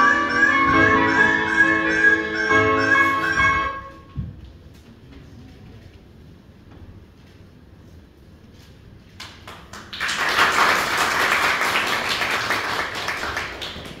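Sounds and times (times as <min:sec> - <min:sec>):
audience applause: 0:09.5 - 0:14.0.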